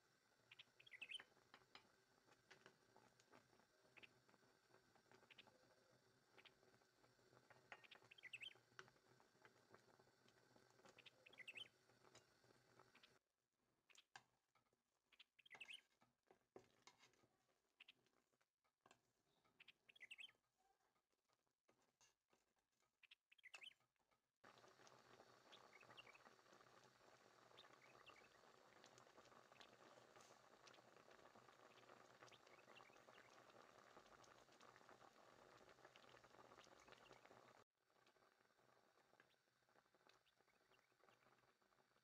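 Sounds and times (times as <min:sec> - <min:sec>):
syrup bubbling in a pot: 0:00.0 - 0:13.2, 0:24.4 - 0:42.0.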